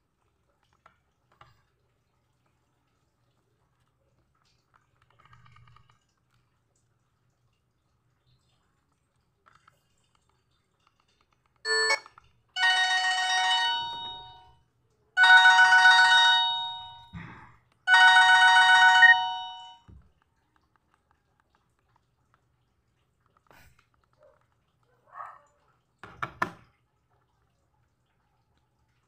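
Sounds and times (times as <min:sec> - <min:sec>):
phone ringtone chiming: 0:11.7 - 0:14.5, 0:15.2 - 0:17.2, 0:17.9 - 0:19.8
short beep: 0:11.7 - 0:14.5, 0:15.2 - 0:17.2, 0:17.9 - 0:19.8.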